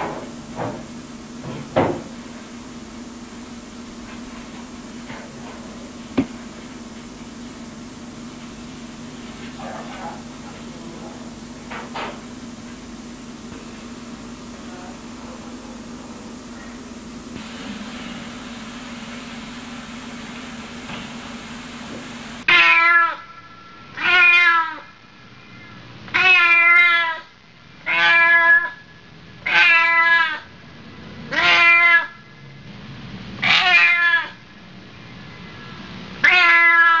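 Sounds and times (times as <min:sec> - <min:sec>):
tape hiss: 0:00.0 - 0:22.4
cat meowing: 0:24.0 - 0:24.8, 0:26.2 - 0:27.2, 0:27.9 - 0:28.7, 0:29.4 - 0:30.4, 0:31.3 - 0:32.1, 0:33.4 - 0:34.4, 0:36.2 - 0:37.0.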